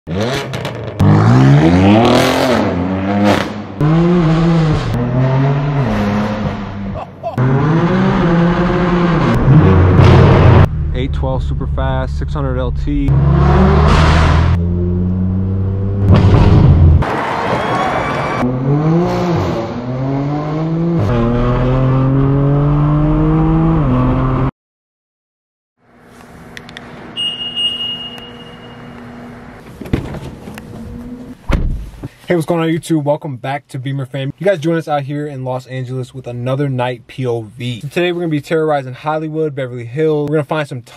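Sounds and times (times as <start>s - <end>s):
car engine revving: 0.1s - 17.3s, 18.4s - 24.5s
car engine accelerating hard: 13.0s - 17.0s.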